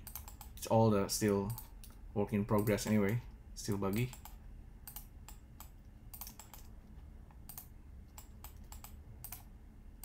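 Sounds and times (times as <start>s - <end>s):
keyboard keystrokes: 4.0s - 6.7s, 7.5s - 9.5s.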